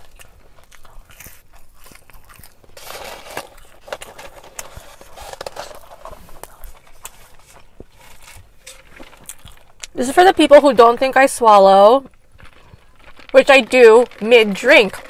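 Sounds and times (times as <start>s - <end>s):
chewing and biting food: 0.0s - 10.0s, 12.1s - 13.4s
small crackly clicks: 11.9s - 15.0s.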